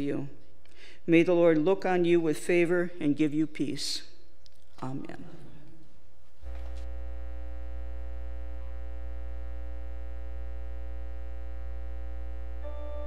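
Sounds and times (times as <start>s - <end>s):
church organ chord: 6.5s - 13.0s.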